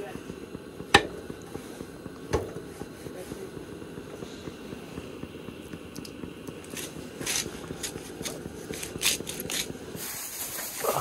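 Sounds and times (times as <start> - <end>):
steady low rumble: 0.0 - 10.4
seasoning shaker rattling: 6.6 - 10.8.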